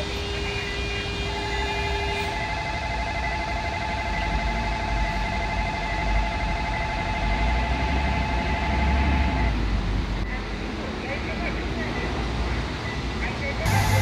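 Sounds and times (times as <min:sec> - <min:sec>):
road traffic rumble: 0:00.0 - 0:14.0
level crossing warning bell: 0:01.9 - 0:09.6, 0:13.6 - 0:14.0.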